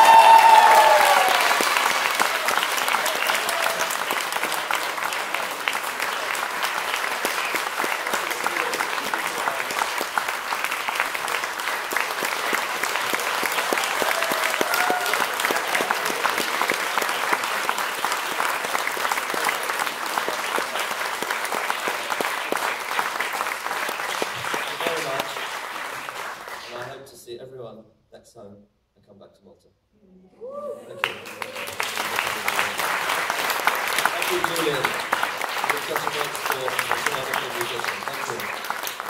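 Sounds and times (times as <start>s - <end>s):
audience clapping: 0.0s - 27.0s, 30.9s - 39.0s.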